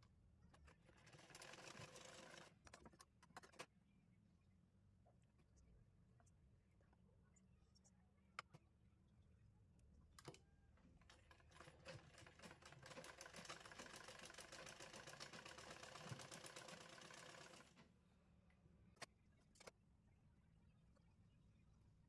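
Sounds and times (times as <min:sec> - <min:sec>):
sewing machine stitching: 0:00.8 - 0:03.6, 0:11.1 - 0:17.8.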